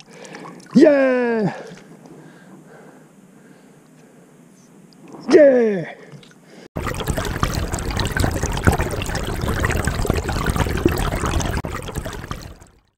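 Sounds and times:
water splashing and trickling: 0.0 - 2.0, 6.1 - 12.9.

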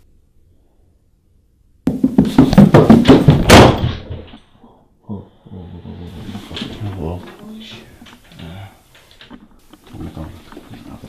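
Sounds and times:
heavy thuds: 1.9 - 4.4.

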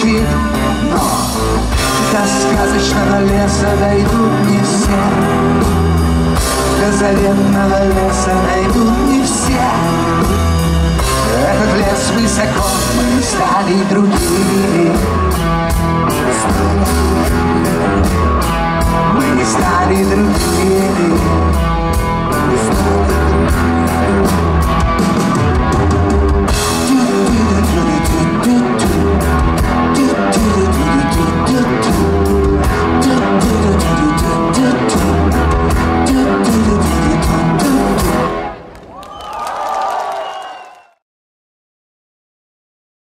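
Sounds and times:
live rock band playing: 0.0 - 38.7.

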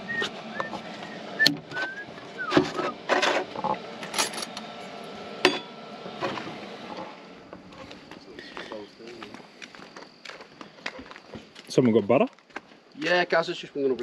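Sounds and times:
high whistled chirps: 0.0 - 3.0.

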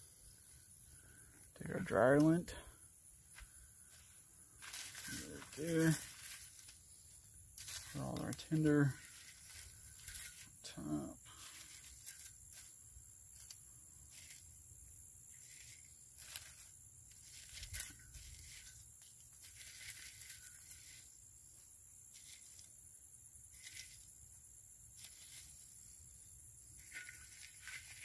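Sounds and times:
dry tinder rustling and crinkling: 3.3 - 14.7, 15.3 - 28.0.

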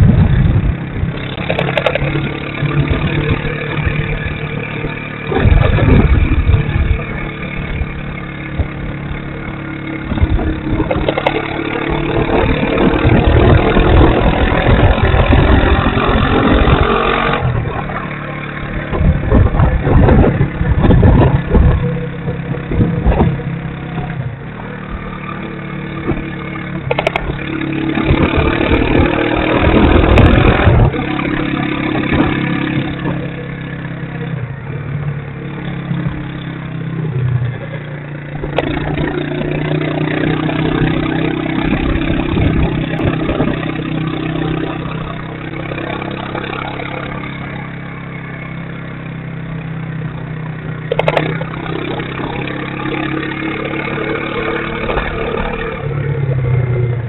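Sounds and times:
wind rushing over microphone: 0.0 - 25.1, 26.0 - 34.8, 38.3 - 46.6
motorcycle engine running: 0.0 - 57.0.

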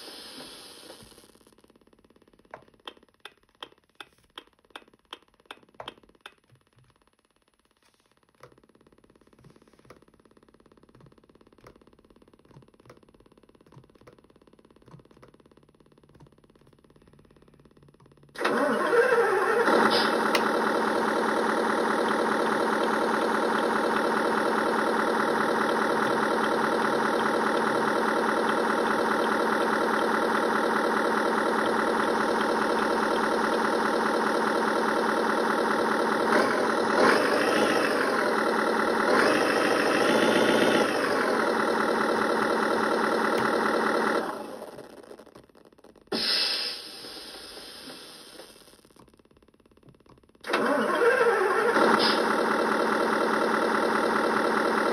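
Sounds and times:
simulated engine idling and revving: 10.3 - 46.0, 50.4 - 54.9.

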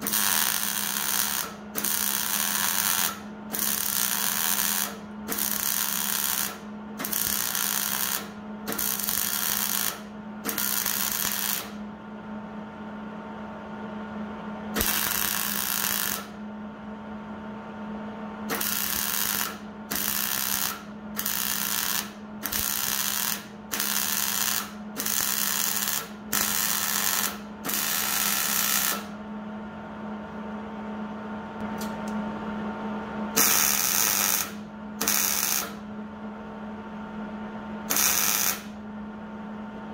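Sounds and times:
welder bursts: 0.0 - 11.8, 14.8 - 16.4, 18.5 - 29.2, 33.4 - 35.8, 37.9 - 38.8
steady low hum: 0.0 - 39.9.

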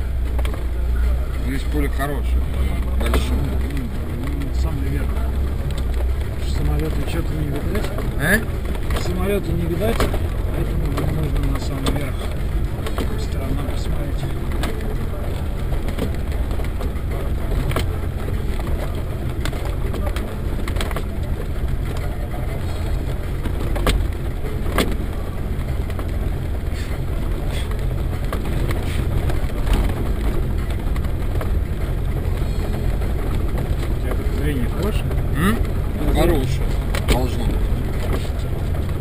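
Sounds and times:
vehicle body knocks and clicks: 0.0 - 39.0
vehicle engine drone: 0.0 - 39.0.

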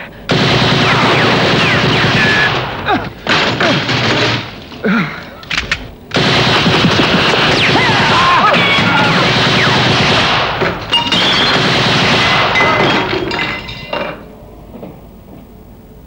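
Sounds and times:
automatic gunfire: 0.3 - 4.7, 6.1 - 13.1
single gunshots: 6.1 - 13.3.

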